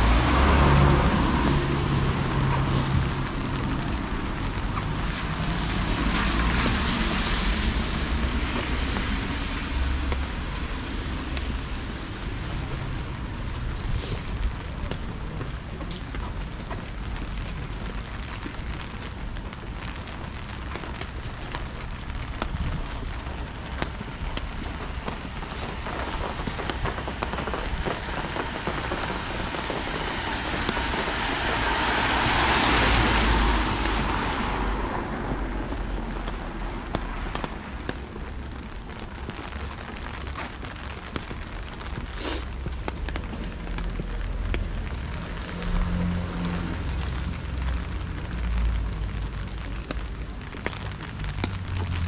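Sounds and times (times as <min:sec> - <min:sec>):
tyre hiss on wet road: 0:00.0 - 0:03.9, 0:13.6 - 0:15.2, 0:24.7 - 0:38.5, 0:40.3 - 0:49.7
steady rain: 0:00.0 - 0:52.0.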